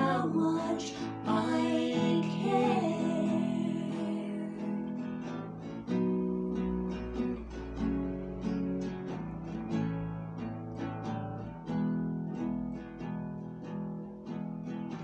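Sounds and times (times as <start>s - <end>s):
women singing held note: 0.0s - 5.0s
nylon-string guitar strumming: 0.0s - 15.0s.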